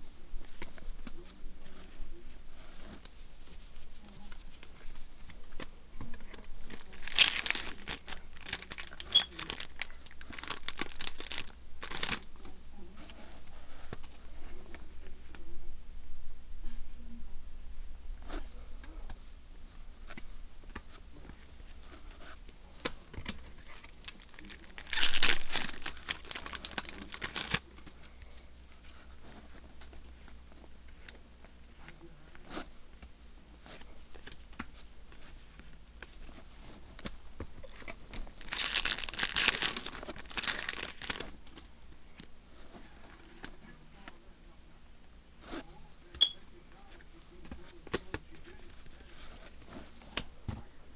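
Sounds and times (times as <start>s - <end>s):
loud card rustling: 6.3s - 12.3s, 22.7s - 28.0s, 37.8s - 41.7s.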